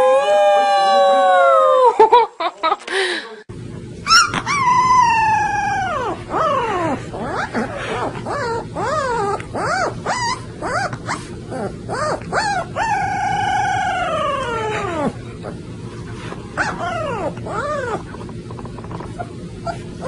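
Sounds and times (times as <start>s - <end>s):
puppy howling: 0.0s - 1.9s, 4.1s - 15.6s, 16.6s - 18.2s
puppy yipping and whining: 4.0s - 15.6s, 16.6s - 18.2s, 19.0s - 20.0s.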